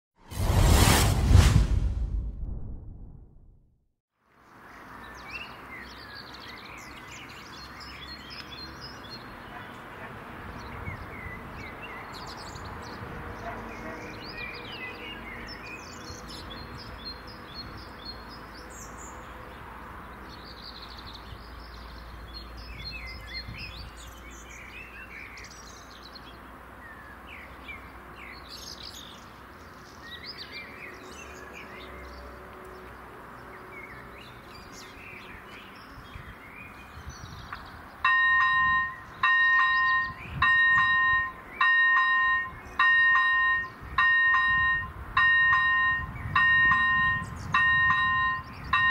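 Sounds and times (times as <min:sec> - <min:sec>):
small birds chirping: 0:04.4 - 0:44.1
level crossing warning bell: 0:38.0 - 0:48.9.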